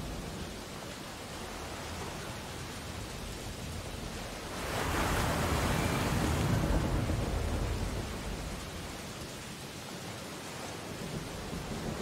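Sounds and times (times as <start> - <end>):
steady sea noise: 0.0 - 12.0
sea wave breaking: 4.5 - 8.4.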